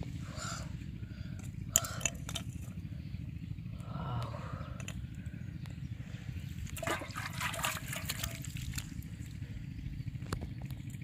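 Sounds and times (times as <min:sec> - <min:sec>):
fish splashing in a metal pot: 0:06.8 - 0:08.8.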